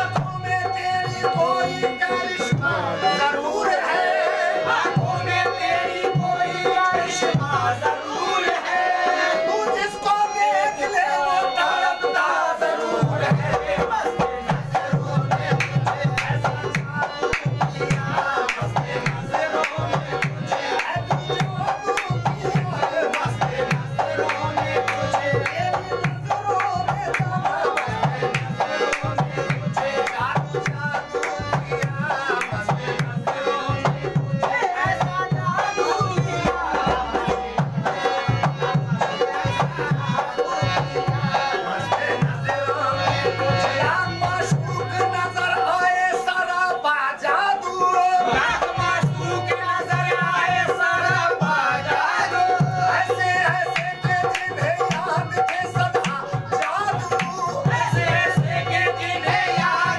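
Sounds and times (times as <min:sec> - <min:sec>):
harmoniums playing sustained melody: 0:00.0 - 0:59.9
hand drum beating steady rhythm: 0:13.0 - 0:45.2, 0:48.2 - 0:59.9.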